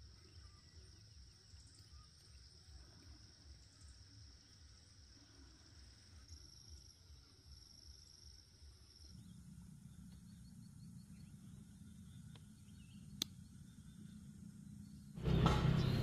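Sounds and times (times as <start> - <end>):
high insect trill: 0.0 - 15.8
low hum: 0.0 - 16.0
sharp click: 13.1 - 13.4.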